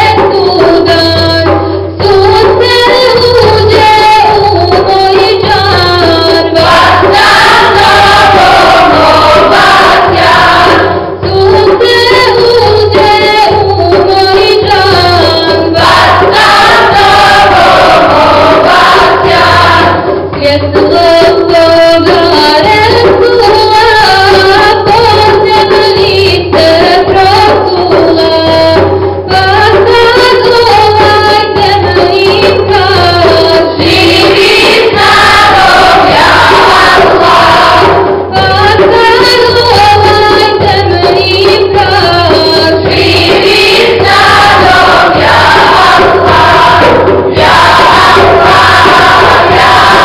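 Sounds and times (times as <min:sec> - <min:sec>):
mixed choir singing a hymn: 0:06.3 - 0:11.3, 0:15.0 - 0:20.4, 0:32.4 - 0:39.1, 0:42.6 - 0:50.0.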